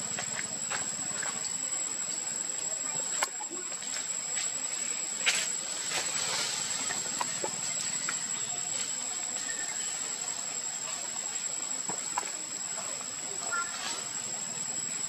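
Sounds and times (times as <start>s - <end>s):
insects droning: 0.0s - 15.0s.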